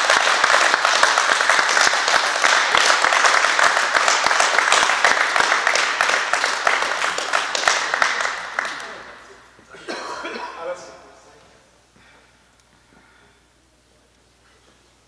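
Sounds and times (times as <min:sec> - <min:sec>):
group of people applauding: 0:00.0 - 0:09.9.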